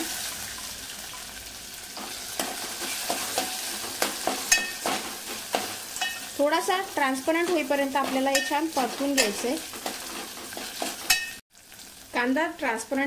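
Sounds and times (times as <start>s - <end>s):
onion sizzling in hot oil: 0.0s - 13.0s
steel spoon scraping a pot: 2.4s - 6.4s, 7.5s - 11.4s.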